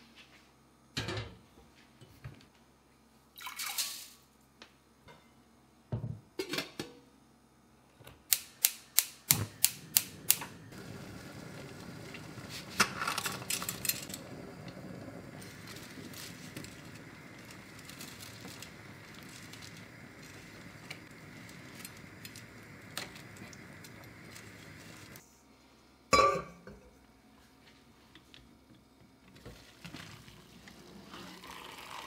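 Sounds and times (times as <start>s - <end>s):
gas igniter clicking: 8.3s - 10.5s
gas flame hissing: 8.3s - 25.3s.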